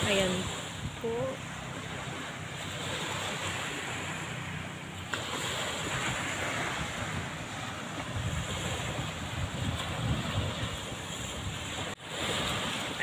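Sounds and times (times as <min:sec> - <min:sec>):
small waves breaking on shore: 0:00.0 - 0:13.0
wind buffeting microphone: 0:00.0 - 0:13.0.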